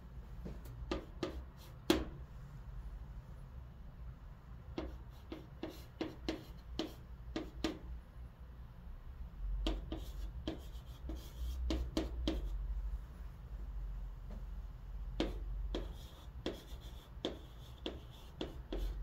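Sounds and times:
steady low hum: 0.0s - 19.0s
chalk scratching on chalkboard: 0.9s - 2.1s, 4.8s - 7.8s, 9.6s - 12.6s, 15.2s - 19.0s.

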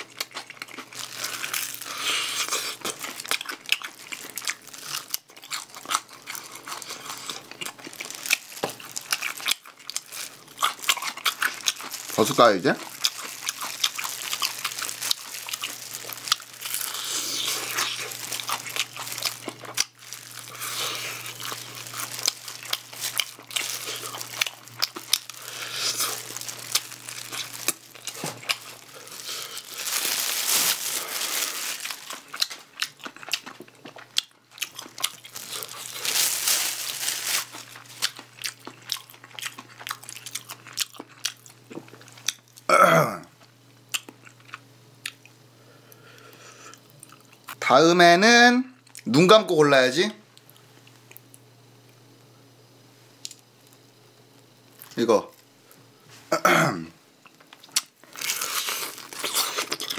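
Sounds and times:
person chewing fried chicken: 0.0s - 42.7s, 43.9s - 45.3s, 57.2s - 59.9s.

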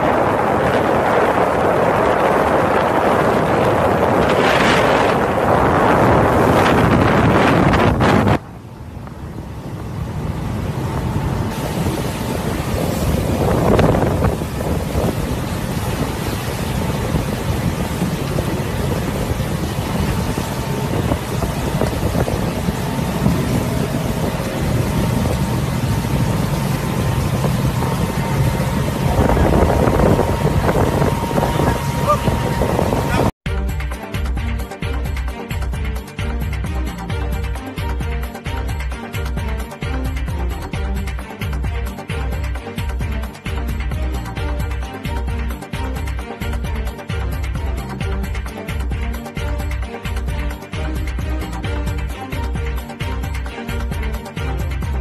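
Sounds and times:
wind buffeting microphone: 0.0s - 33.4s
motorboat engine running: 0.0s - 55.0s
water hissing: 11.2s - 33.4s.

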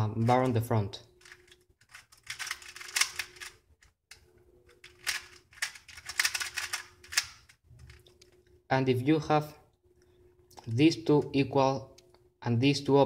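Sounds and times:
plastic puzzle cube clicking: 1.2s - 8.1s.

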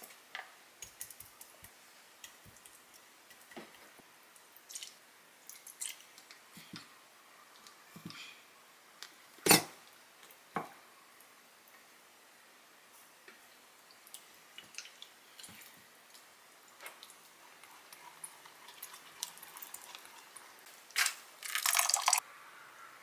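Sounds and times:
spoon stirring thick sauce: 13.9s - 20.6s.

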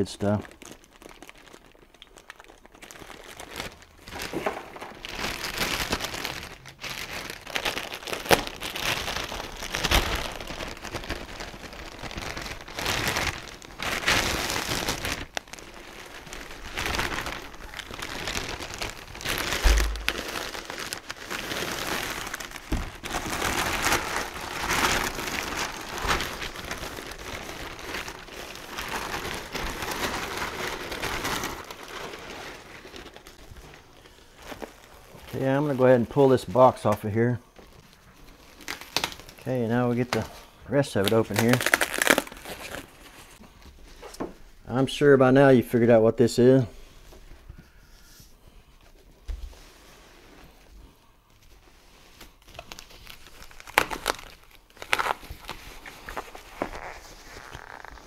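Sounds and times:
plastic film crinkling: 0.0s - 47.5s, 48.8s - 58.0s
low bump: 19.6s - 20.3s.

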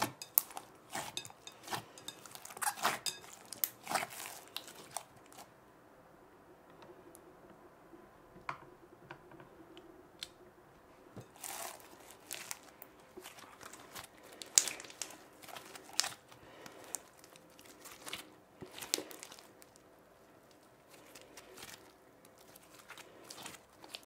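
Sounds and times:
slime squishing: 0.0s - 5.5s, 11.2s - 24.0s.

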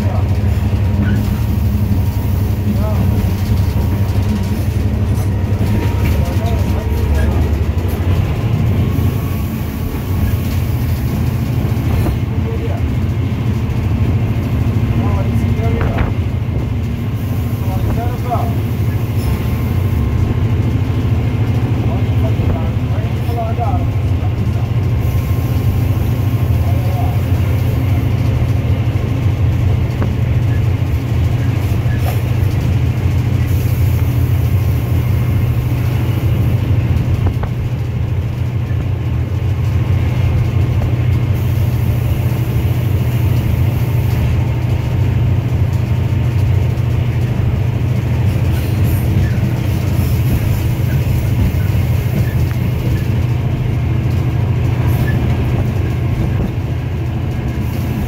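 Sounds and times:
diesel locomotive engine droning: 0.0s - 58.0s.

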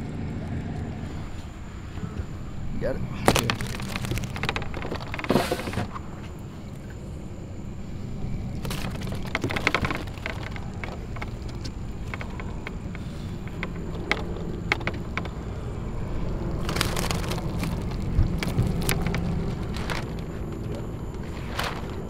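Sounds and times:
low hum: 0.0s - 22.0s
gear clicks and taps on deck: 3.2s - 6.0s, 8.5s - 22.0s.

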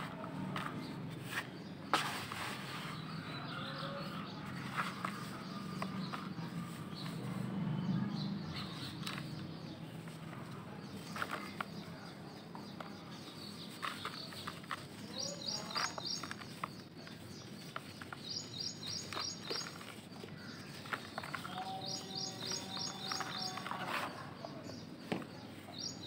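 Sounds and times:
bird chirping: 0.8s - 26.0s.

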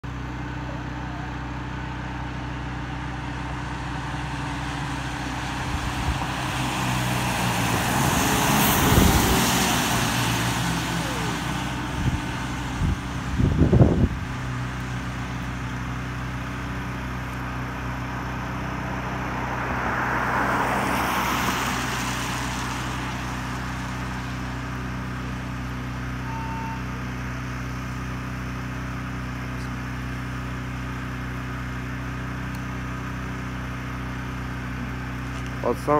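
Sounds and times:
fire engine driving past: 0.0s - 35.9s
low engine hum: 0.0s - 35.9s
vehicle passing: 3.8s - 15.1s, 18.2s - 25.7s.

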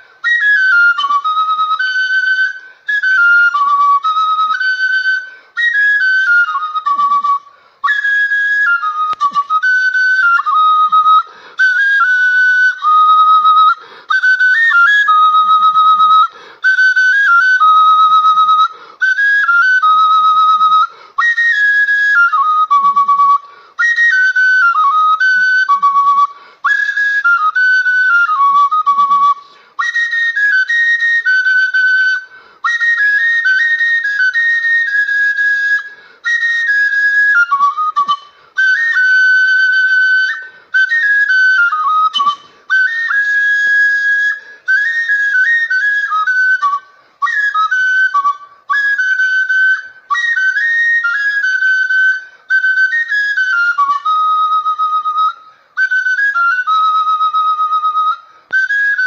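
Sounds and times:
flute melody: 0.0s - 59.0s.

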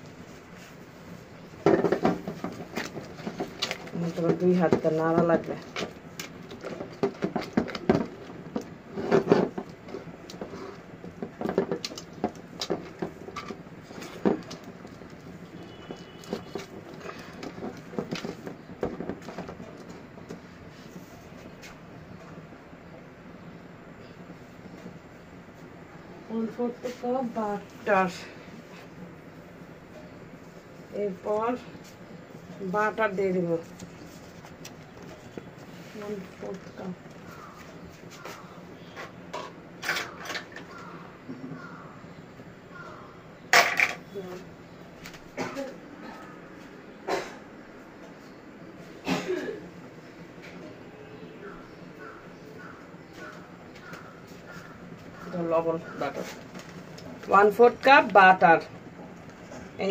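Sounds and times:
spatula stirring caramel in pot: 0.3s - 22.2s.

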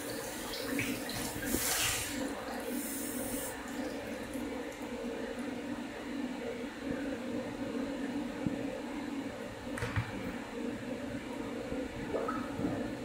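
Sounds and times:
water running from a tap: 0.0s - 4.8s.

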